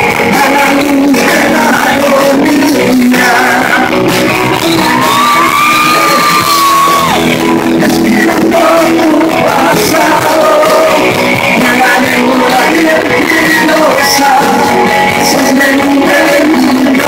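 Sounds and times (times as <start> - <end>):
drums: 0.0 - 17.0
electric guitar: 0.0 - 17.0
live rock band playing: 0.0 - 17.0.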